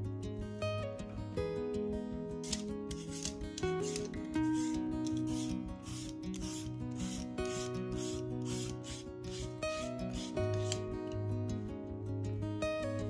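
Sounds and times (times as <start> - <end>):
acoustic guitar music: 0.0 - 13.0
peeler rasping on potato: 2.9 - 10.8.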